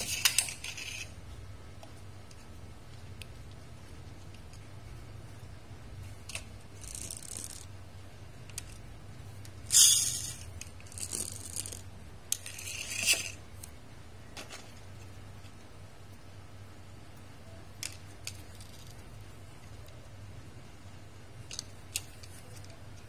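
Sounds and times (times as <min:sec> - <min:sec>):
toy car wheels scraping and whirring: 0:00.0 - 0:01.2, 0:06.7 - 0:07.7, 0:09.7 - 0:13.4.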